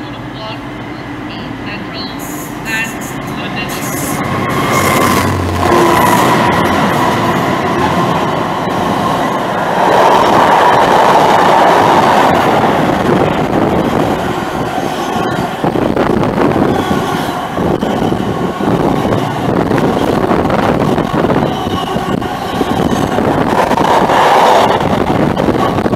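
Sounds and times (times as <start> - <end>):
diesel locomotive engine: 0.0 - 25.9
train wagons rumbling past: 0.0 - 25.9.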